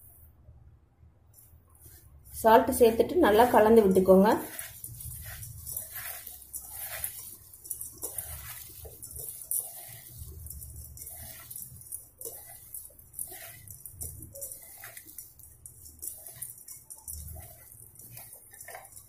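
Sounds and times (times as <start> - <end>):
hand mixing food in metal bowl: 1.8 - 19.0.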